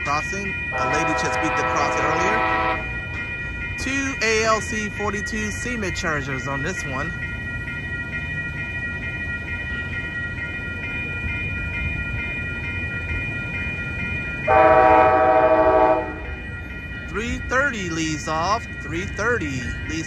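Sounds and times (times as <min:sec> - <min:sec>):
crossing bell ringing: 0:00.0 - 0:20.0
train rumble: 0:00.0 - 0:20.0
train horn: 0:00.8 - 0:02.9, 0:14.5 - 0:16.3.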